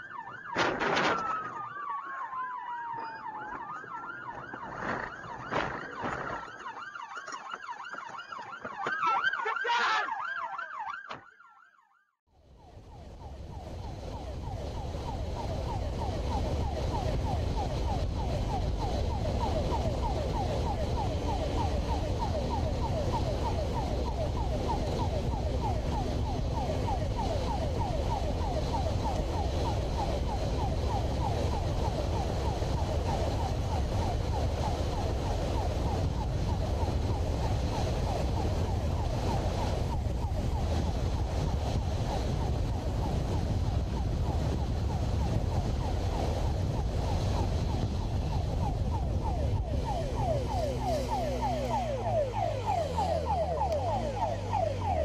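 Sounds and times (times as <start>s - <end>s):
road noise: 0.0s - 11.2s, 12.3s - 55.0s
police siren wailing: 0.0s - 55.0s.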